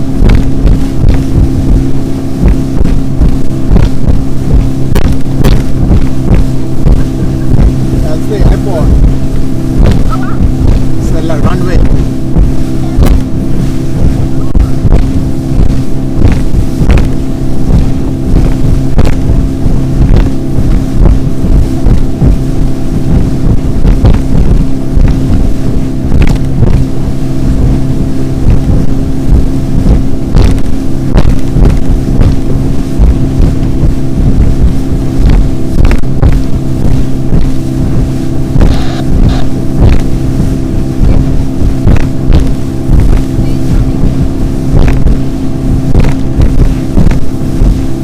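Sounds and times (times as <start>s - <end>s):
motorboat engine running: 0.0s - 48.0s
hull thumps and splashes: 28.5s - 48.0s.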